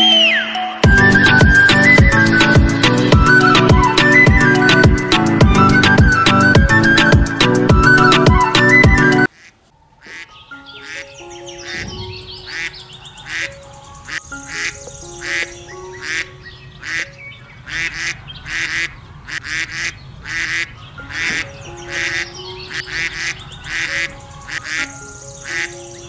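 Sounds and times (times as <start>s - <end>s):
light melodic music: 0.0s - 19.2s, 20.5s - 26.0s
ducks quacking: 9.3s - 25.9s.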